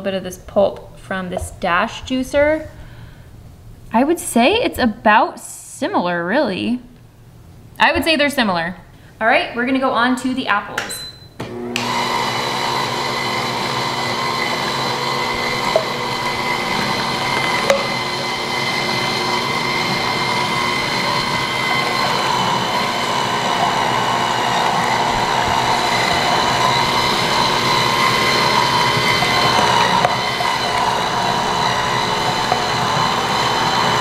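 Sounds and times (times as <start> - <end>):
juicer motors whining: 11.4 - 34.0.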